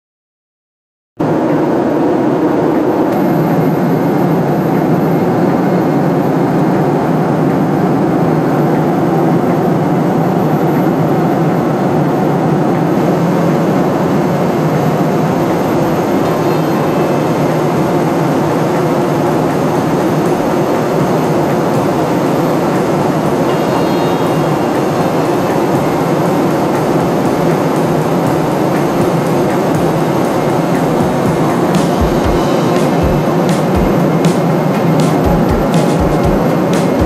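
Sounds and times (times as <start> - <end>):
jet aircraft roar: 1.2 - 37.0.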